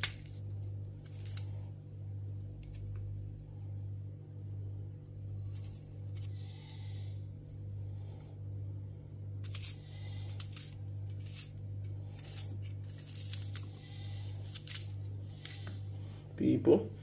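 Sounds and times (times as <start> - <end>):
steady low hum: 0.0 - 17.0
knife slicing onion: 9.4 - 15.8.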